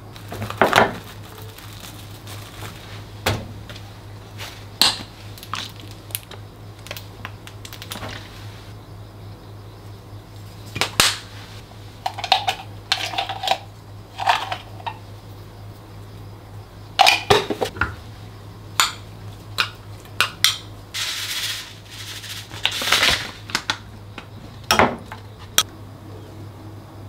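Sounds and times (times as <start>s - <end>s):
low steady hum: 0.0s - 27.0s
cling film crinkling: 0.1s - 8.7s.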